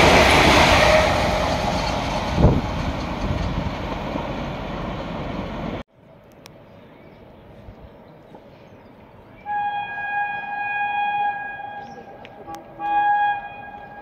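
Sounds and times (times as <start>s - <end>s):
electric locomotive horn blasts: 9.4s - 14.0s.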